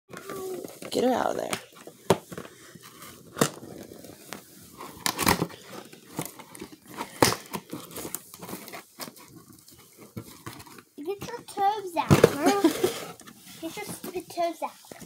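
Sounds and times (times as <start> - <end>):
packaging rustling and crinkling: 0.1 - 15.0
packaging snapping and tearing: 3.1 - 10.9.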